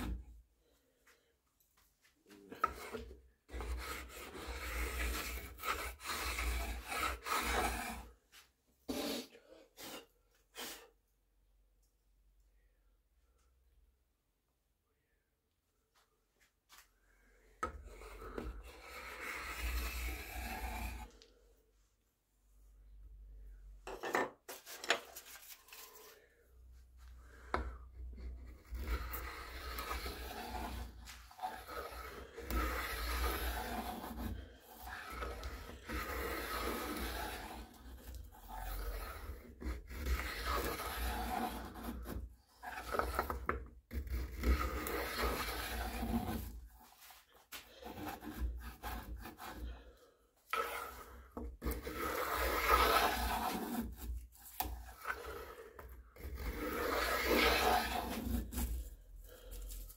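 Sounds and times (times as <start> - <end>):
hand tool scraping wood: 0.0 - 0.2, 2.3 - 10.9, 17.6 - 21.4, 27.2 - 59.9.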